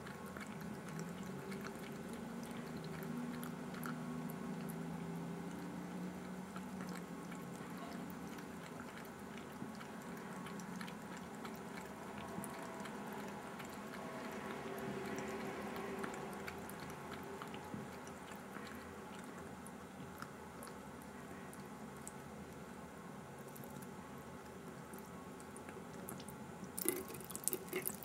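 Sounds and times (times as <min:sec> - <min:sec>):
cat lapping water: 0:00.0 - 0:28.0.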